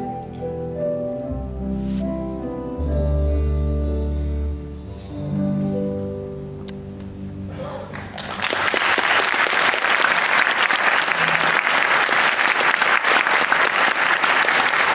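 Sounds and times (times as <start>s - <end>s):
held music chord: 0.0s - 8.0s
audience applause: 7.9s - 14.9s.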